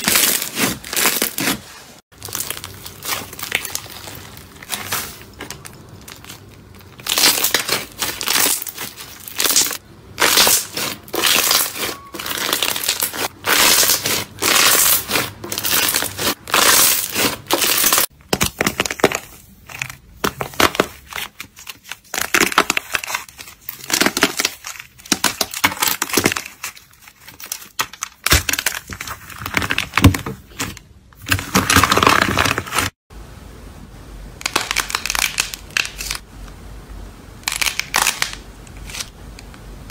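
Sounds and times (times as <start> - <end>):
cracked clay coating crinkling: 0.0 - 33.0
hands squeezing crunchy slime: 2.2 - 19.9, 34.4 - 36.2.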